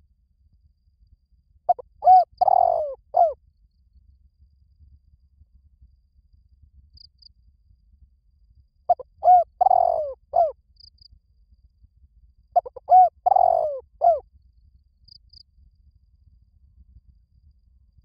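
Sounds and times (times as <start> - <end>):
dove cooing: 1.7 - 3.4, 8.9 - 10.5, 12.6 - 14.2.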